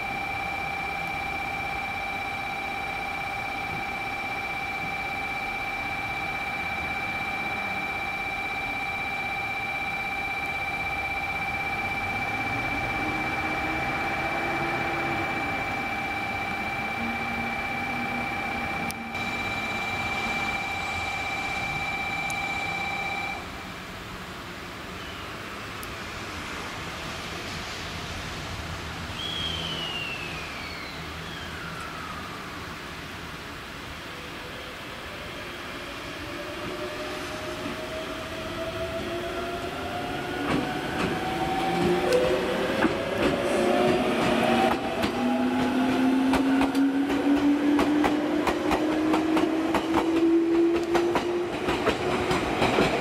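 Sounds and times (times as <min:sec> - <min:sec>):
electric train motor whine: 0:00.0 - 0:23.6
electronic departure buzzer: 0:00.2 - 0:23.4
wheels clacking over rail joints: 0:42.8 - 0:53.0.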